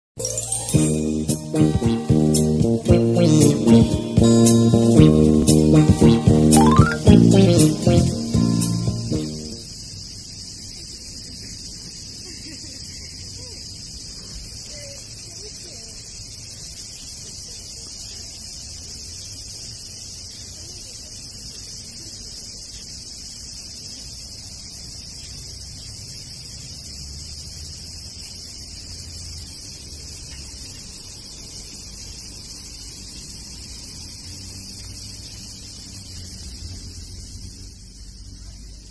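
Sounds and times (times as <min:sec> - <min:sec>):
high-pitched hiss: 0:00.2 - 0:38.9.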